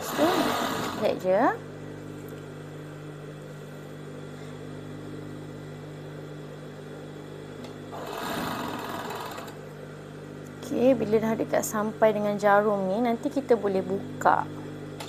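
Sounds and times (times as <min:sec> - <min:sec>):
overlock sewing machine running: 0:00.0 - 0:01.2, 0:07.9 - 0:09.6.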